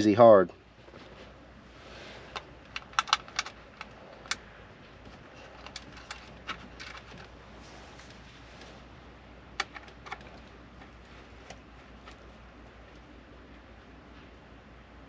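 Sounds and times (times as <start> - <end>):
screws and screwdriver clicking on plastic: 2.7 - 4.4.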